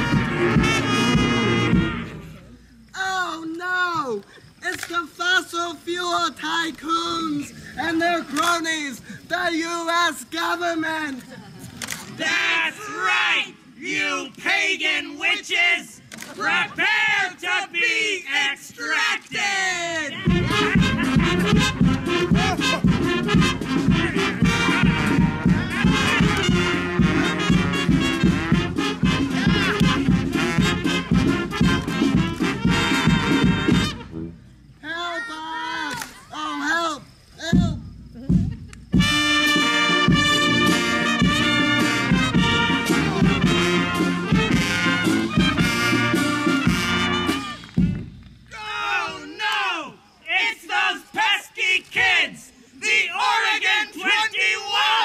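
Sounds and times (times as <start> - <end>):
drum beat: 0.0 - 2.1, 20.2 - 34.1, 37.6 - 48.1
brass band playing: 0.0 - 2.5, 20.2 - 34.5, 38.9 - 48.1.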